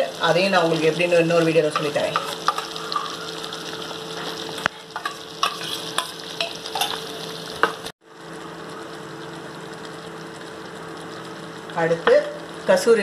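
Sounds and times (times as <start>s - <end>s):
thick sauce simmering in a pan: 0.1s - 13.0s.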